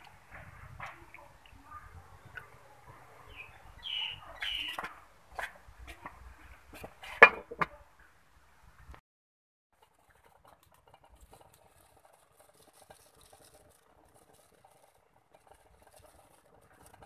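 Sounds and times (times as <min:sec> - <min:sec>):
glass lid clinking on wok: 0:07.2 - 0:07.7.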